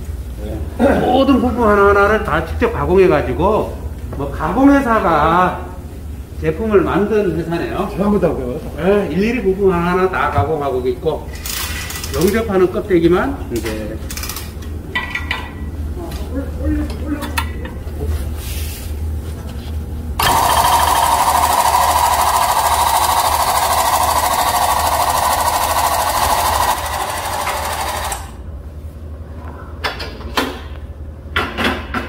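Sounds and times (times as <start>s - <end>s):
hydraulic foot pump hissing: 20.2s - 28.3s.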